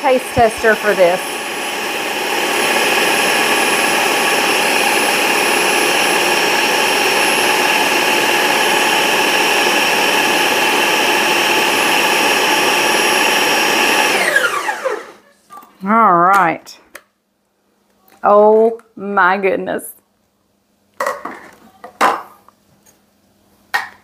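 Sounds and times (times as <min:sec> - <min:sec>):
food processor motor whining: 0:00.0 - 0:15.2.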